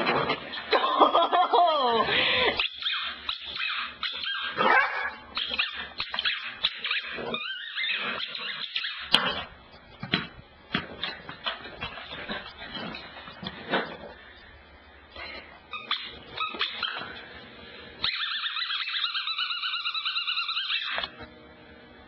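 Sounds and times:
puppy yipping and whimpering: 2.7 - 9.1, 18.0 - 21.0.

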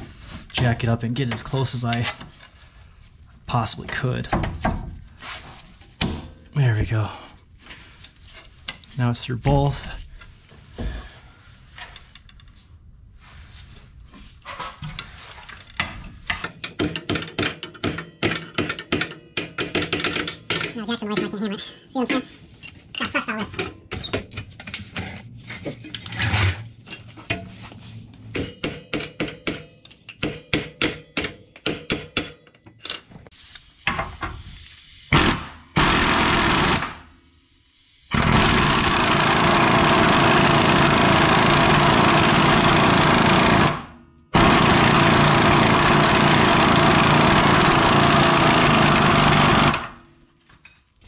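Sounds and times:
power tool rattling: 35.2 - 37.0, 38.1 - 50.1.

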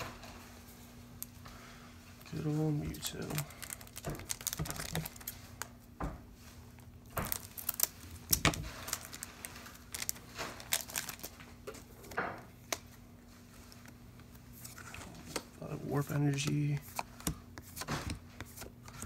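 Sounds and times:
faint steady hum: 0.0 - 19.0
cards clicking and sliding: 14.7 - 19.0.

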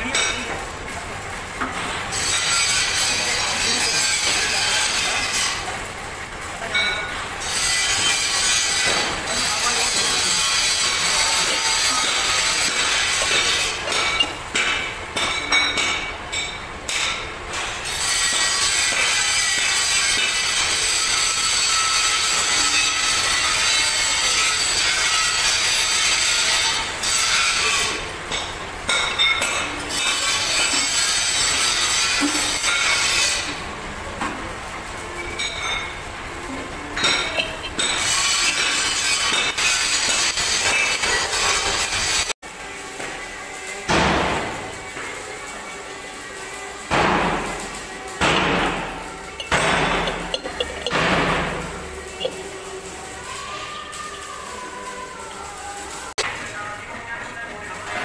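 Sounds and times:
steady machine noise: 0.0 - 29.0, 29.8 - 58.0
scraping on metal engine parts: 1.5 - 33.7, 34.7 - 42.4, 44.6 - 53.3
metal tool clinks: 49.3 - 51.1.

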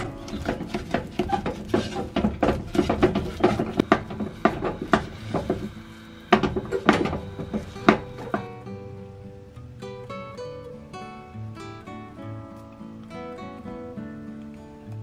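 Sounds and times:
spatula scraping paste in pot: 0.0 - 8.4.

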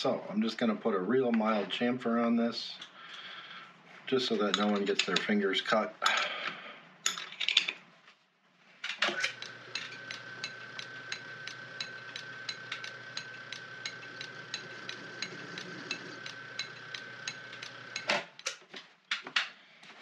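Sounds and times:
metal lathe whining: 9.1 - 18.2
regular ticking: 9.2 - 18.4.

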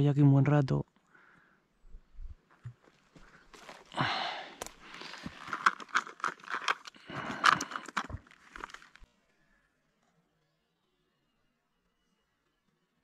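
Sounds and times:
gear rustling on dry grass: 2.9 - 9.0.

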